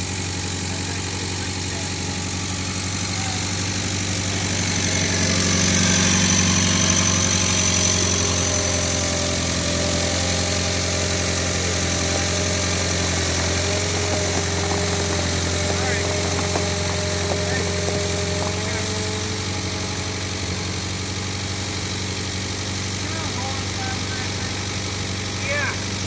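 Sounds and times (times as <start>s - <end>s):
forklift engine running: 0.0s - 26.0s.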